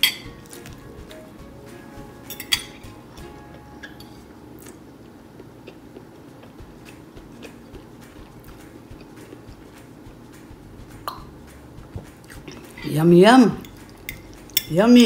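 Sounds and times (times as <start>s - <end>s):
cutlery clinking on ceramic plate: 0.0s - 0.8s, 2.3s - 3.0s.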